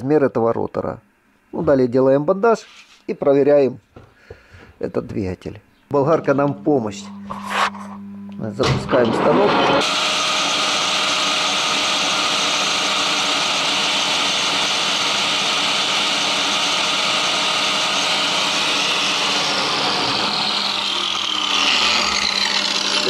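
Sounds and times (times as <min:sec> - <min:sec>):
angle grinder grinding magnets: 0:07.0 - 0:08.0, 0:18.6 - 0:23.0
lathe running: 0:09.0 - 0:23.0.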